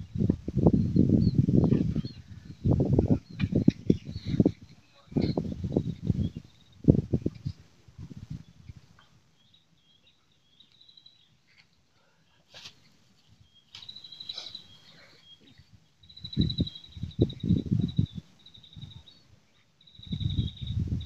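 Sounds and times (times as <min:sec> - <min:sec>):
high chirping calls: 0:13.5 - 0:19.3, 0:19.9 - 0:21.0
high pulsed insect trill: 0:13.7 - 0:15.0, 0:16.0 - 0:21.0.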